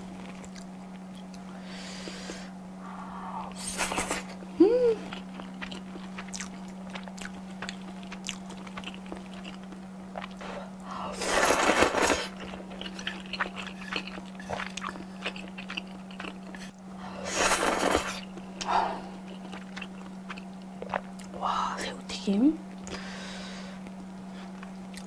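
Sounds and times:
wet chewing: 5.0 - 16.8, 17.4 - 21.4
slurping noodles: 11.1 - 15.0, 16.6 - 18.3.

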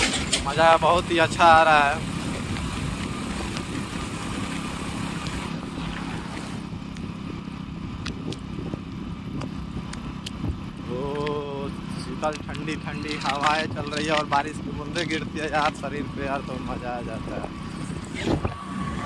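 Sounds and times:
motorcycle engine running: 0.0 - 19.0
wind on microphone: 0.5 - 10.8, 17.4 - 19.0
light ticks: 11.0 - 11.4.

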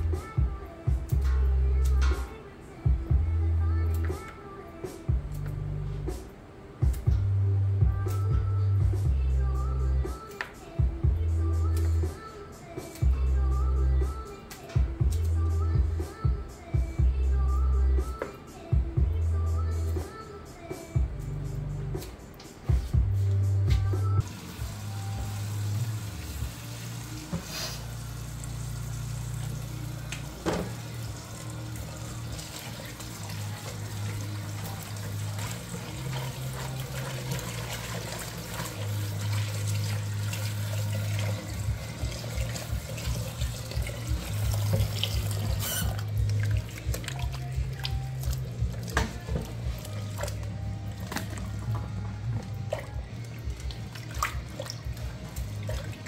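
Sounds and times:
background music with bass line: 0.0 - 56.0
faucet running into a pot: 24.2 - 56.0.

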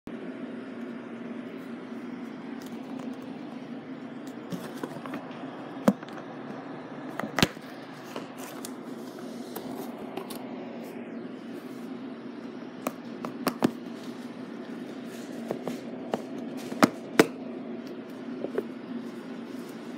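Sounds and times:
steady low hum: 0.1 - 19.9.

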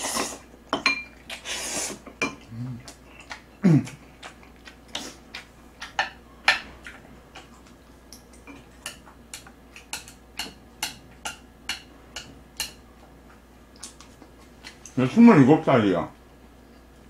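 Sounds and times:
wet chewing clicks and smacks: 2.8 - 10.4.

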